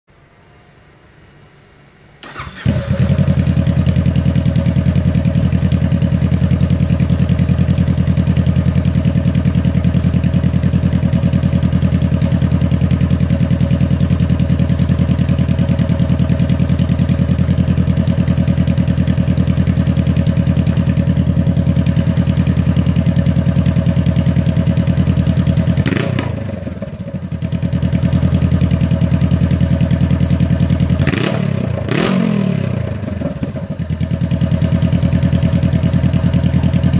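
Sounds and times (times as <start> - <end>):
motorcycle engine revving: 2.2 - 36.9
motorcycle engine starting and idling: 2.2 - 36.9.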